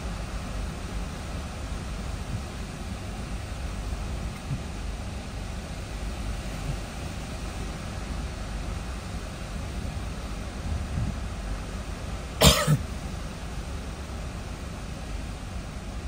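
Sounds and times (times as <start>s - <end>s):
wind buffeting a car: 0.5s - 8.5s, 9.5s - 11.7s.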